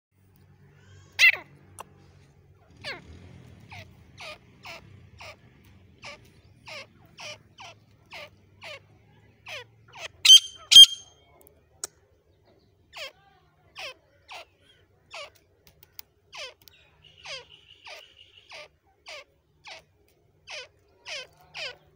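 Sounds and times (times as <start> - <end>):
bird calling: 9.5 - 11.1.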